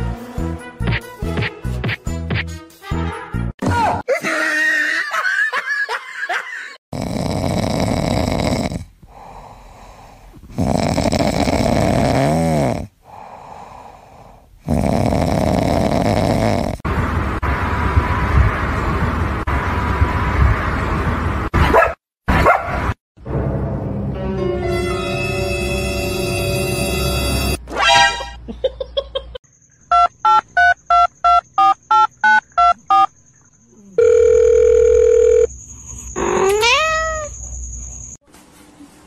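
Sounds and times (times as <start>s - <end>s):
cat snoring: 6.9s - 16.8s.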